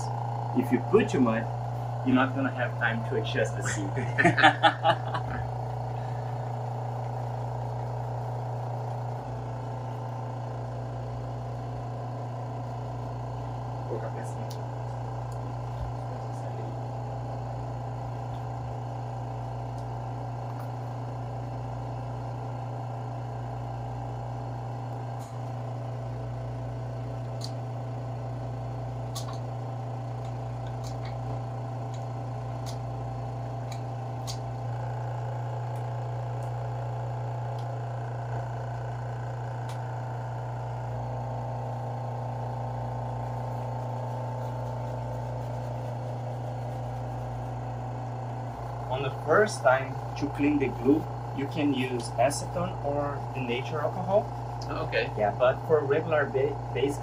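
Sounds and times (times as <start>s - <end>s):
vacuum pump humming: 0.0s - 57.0s.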